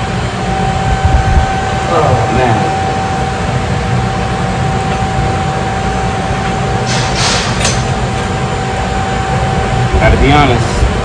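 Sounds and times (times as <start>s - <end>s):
constant whine: 0.0s - 11.0s
machinery hum and rush: 0.0s - 11.0s.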